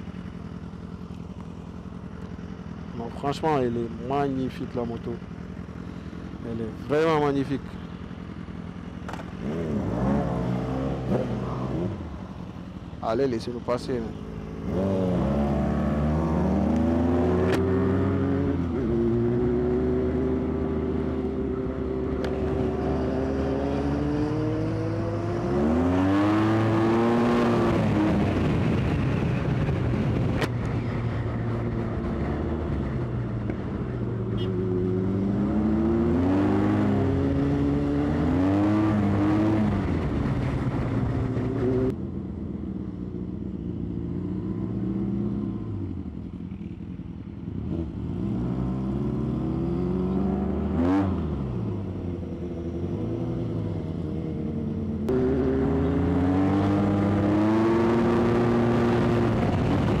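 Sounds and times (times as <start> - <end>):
motorcycle engine revving: 0.0 - 60.0
wind noise: 25.6 - 34.0, 56.3 - 60.0.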